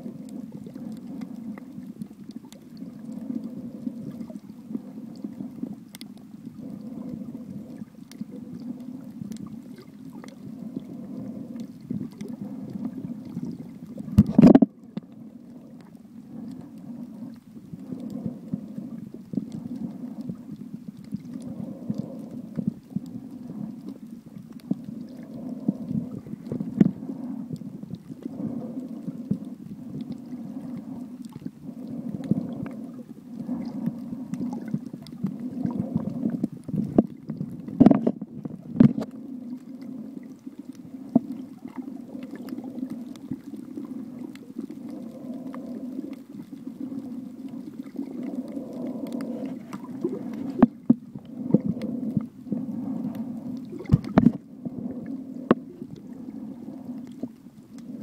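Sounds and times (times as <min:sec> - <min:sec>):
sea water sloshing and gurgling: 0:00.0 - 0:58.0.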